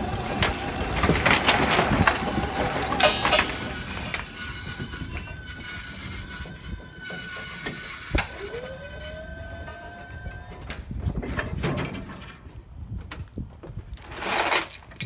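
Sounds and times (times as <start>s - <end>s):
metal clank: 0.0s - 8.6s
crane machinery whining: 0.0s - 12.0s.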